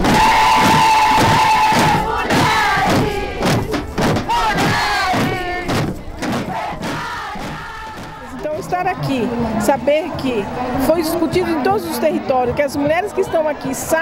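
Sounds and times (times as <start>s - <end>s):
drums beaten with sticks: 0.0s - 9.8s
crowd of women chanting: 0.0s - 14.0s.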